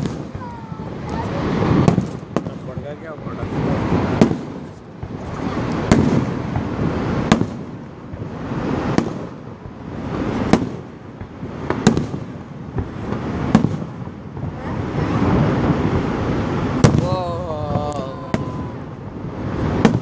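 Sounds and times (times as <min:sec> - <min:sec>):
firework shells bursting: 0:00.0 - 0:09.4
continuous rumble: 0:00.0 - 0:20.0.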